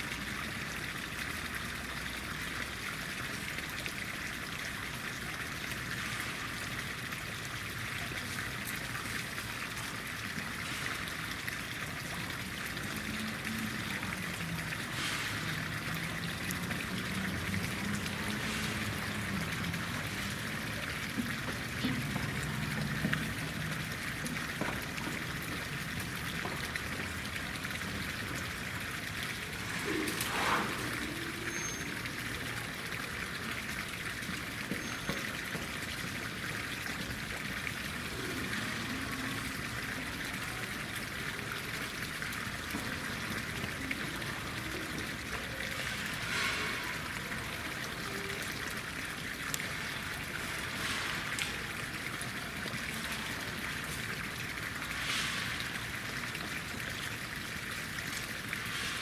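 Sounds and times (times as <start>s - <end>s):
running water rushing: 0.0s - 59.0s.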